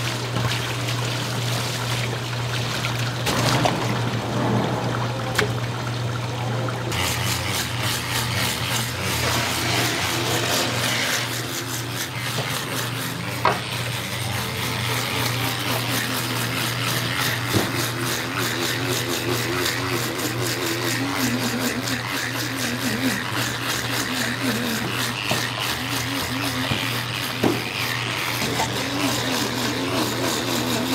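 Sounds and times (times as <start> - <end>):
electric fish scaler motor hum: 0.0 - 30.9
scales rasping off fish: 6.9 - 30.9.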